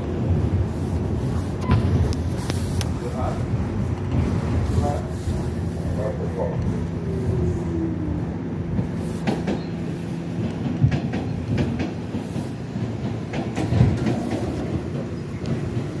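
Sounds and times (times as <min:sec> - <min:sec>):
subway train rumbling: 0:00.0 - 0:16.0
wheels clicking over rail joints: 0:08.8 - 0:16.0.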